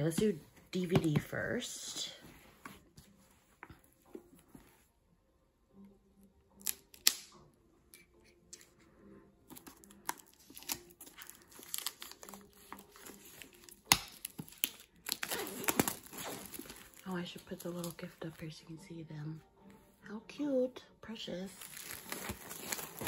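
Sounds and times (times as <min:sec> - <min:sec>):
plastic wrap tearing and rustling: 0:09.5 - 0:18.0, 0:21.6 - 0:23.0
knife slitting shrink wrap: 0:10.0 - 0:17.0, 0:21.7 - 0:23.0.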